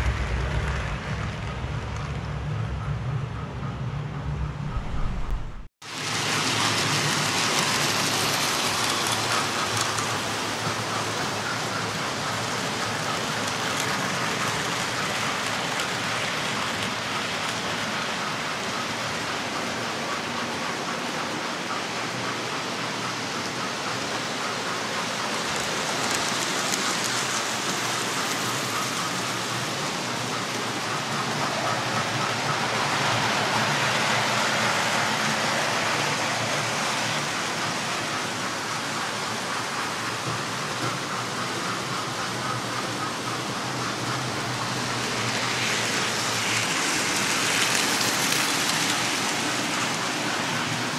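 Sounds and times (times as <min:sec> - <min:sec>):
model trains whirring on track: 0:00.0 - 0:50.9.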